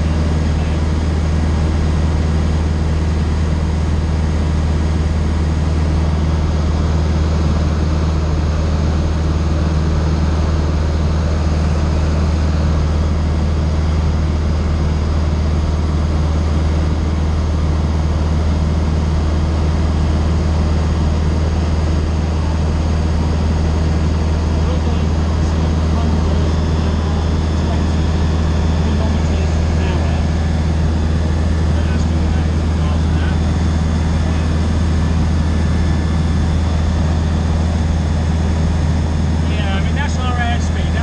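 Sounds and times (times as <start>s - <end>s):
aircraft engine and propeller droning: 0.0s - 41.0s.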